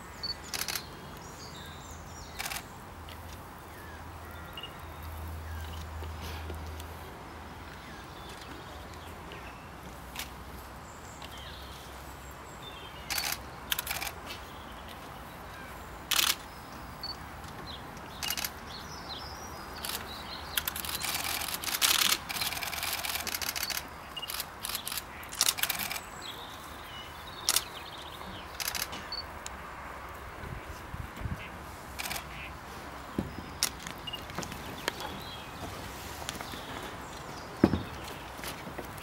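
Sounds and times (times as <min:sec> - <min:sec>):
camera shutter clicking: 0:16.1 - 0:16.4, 0:20.6 - 0:26.0, 0:28.6 - 0:29.2, 0:32.0 - 0:32.3.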